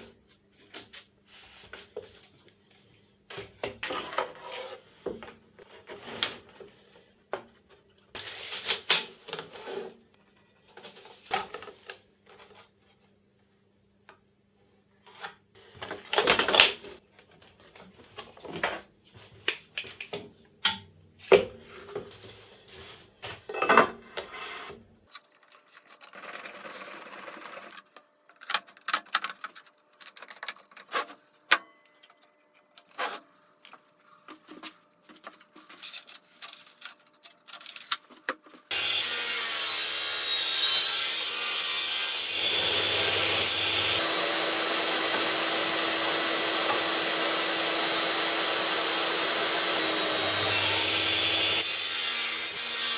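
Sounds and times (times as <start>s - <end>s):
dust extractor whining: 42.3s - 51.6s.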